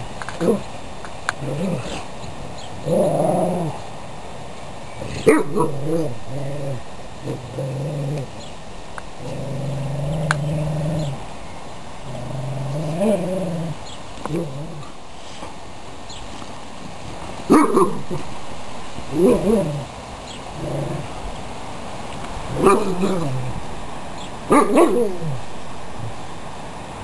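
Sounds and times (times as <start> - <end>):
dogs play-growling: 1.3 - 2.1, 2.8 - 3.8, 5.0 - 8.5, 9.2 - 11.3, 12.0 - 15.6, 19.1 - 21.4, 22.4 - 23.6
dog bark: 5.2 - 5.8, 17.5 - 18.1, 22.6 - 23.3, 24.5 - 25.2.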